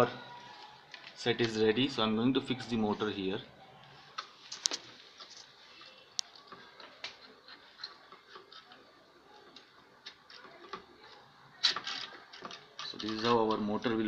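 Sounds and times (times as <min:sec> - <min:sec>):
plastic and metal parts clicking: 0:06.2 - 0:14.0.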